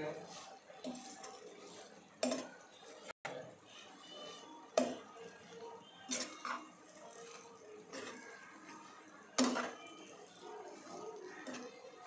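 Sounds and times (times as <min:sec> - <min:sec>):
spatula scraping metal pot: 0:00.1 - 0:03.1, 0:03.8 - 0:12.0.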